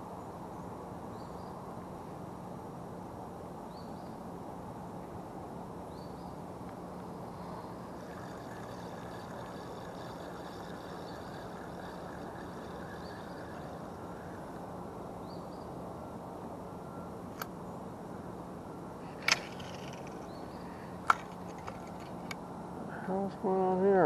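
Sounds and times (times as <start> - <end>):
faint hum: 0.0 - 24.0
fishing reel clicking: 7.1 - 14.8.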